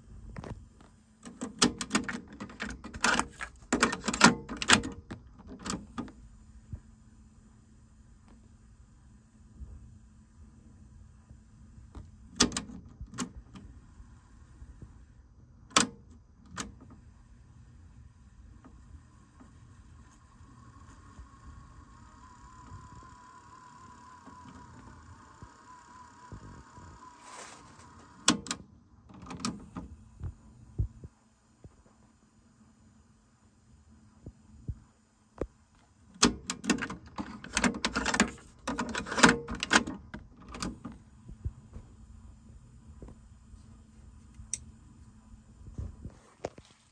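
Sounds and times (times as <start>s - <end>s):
faint steady hum: 0.0s - 46.9s
cassette door opening and closing: 1.2s - 6.2s, 11.9s - 13.7s, 15.6s - 17.0s, 27.2s - 30.0s, 36.1s - 41.0s
cassette tape clatter: 1.2s - 6.2s, 36.2s - 41.0s.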